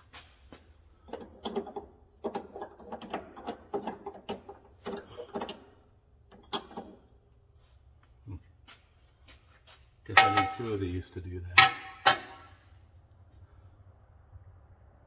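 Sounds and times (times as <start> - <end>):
metallic clicking and rattling: 1.0 - 7.1, 11.5 - 12.6.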